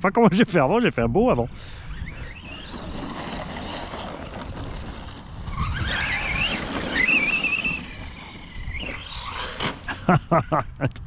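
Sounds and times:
electric motor whining: 0:01.7 - 0:10.1.

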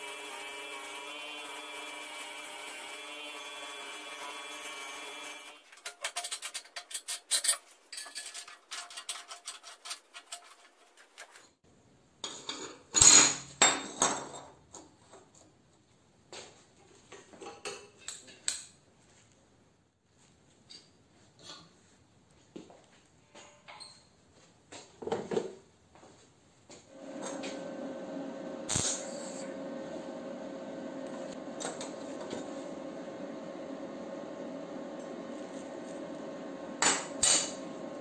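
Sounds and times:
angle grinder running: 0:26.9 - 0:38.0.

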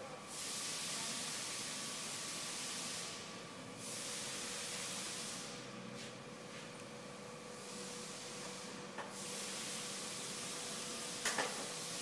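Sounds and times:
steady hiss: 0:07.6 - 0:12.0.

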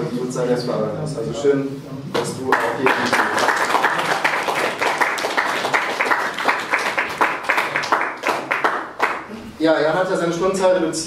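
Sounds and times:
people applauding: 0:02.2 - 0:09.4.

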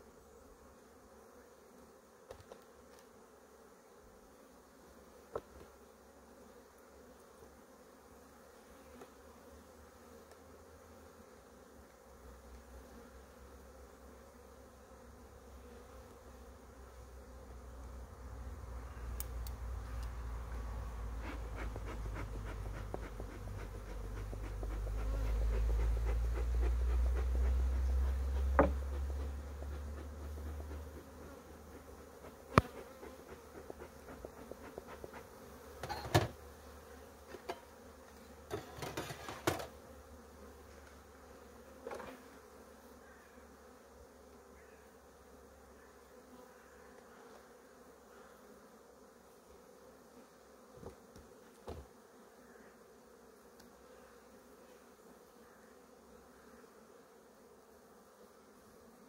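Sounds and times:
honeybees buzzing: 0:00.0 - 0:59.0
hive frames knocking and clicking: 0:28.4 - 0:31.3, 0:32.5 - 0:36.4.

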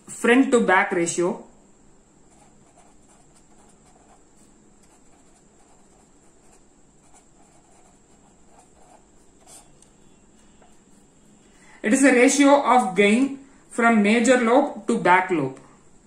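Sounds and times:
marker pen scratching on paper: 0:02.3 - 0:11.4.

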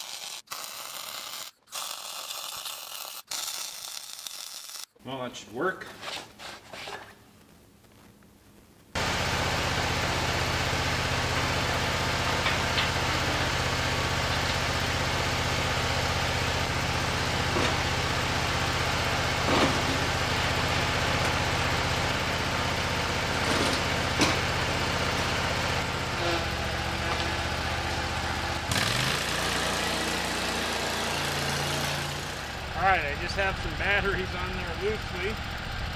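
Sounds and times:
mower engine idling: 0:09.0 - 0:35.9.

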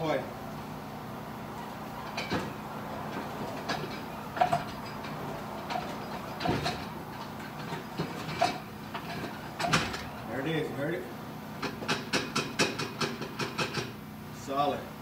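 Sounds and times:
sharp metal clunk: 0:02.0 - 0:10.1
metal clinks and knocks: 0:02.0 - 0:10.2.

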